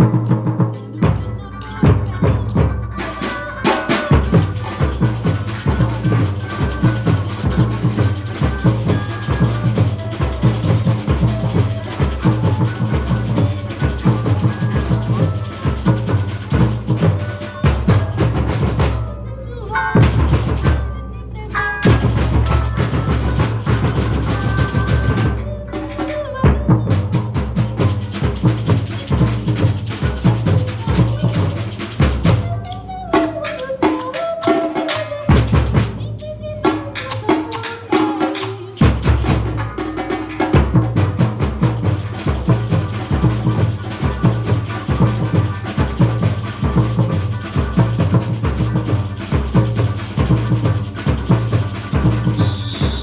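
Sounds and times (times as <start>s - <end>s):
fast snare and shaker rhythm: 0.0s - 21.0s, 21.8s - 53.0s
person singing: 0.0s - 40.6s, 41.7s - 53.0s
quick percussion: 0.0s - 53.0s
deep surdo drums: 4.0s - 19.1s, 20.0s - 21.0s, 21.8s - 25.6s, 26.4s - 32.6s, 38.8s - 53.0s.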